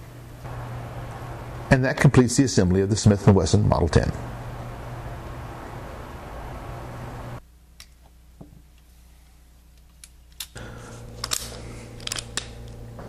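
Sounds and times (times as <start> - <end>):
revolver metallic clicks: 11.2 - 12.8.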